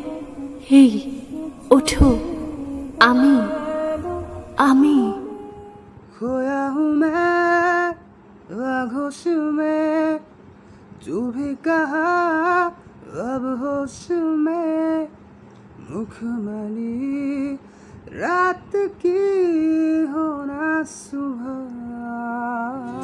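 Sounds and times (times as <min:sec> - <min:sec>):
person singing unaccompanied: 0:00.0 - 0:10.2, 0:15.9 - 0:23.0.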